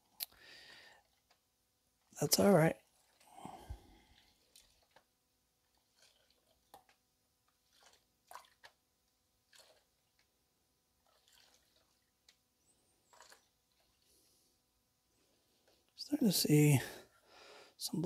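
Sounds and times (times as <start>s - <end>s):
water sloshing and dripping: 2.8s - 14.4s
short water splashes: 3.0s - 8.8s, 9.4s - 10.2s, 11.0s - 12.4s, 13.1s - 14.2s.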